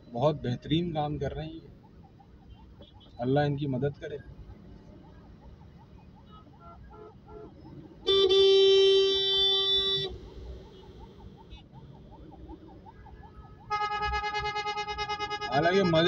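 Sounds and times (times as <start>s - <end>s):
traffic rumble: 0.0s - 16.0s
faint siren yelping: 1.5s - 3.4s, 4.2s - 16.0s
car horn blast: 13.7s - 16.0s.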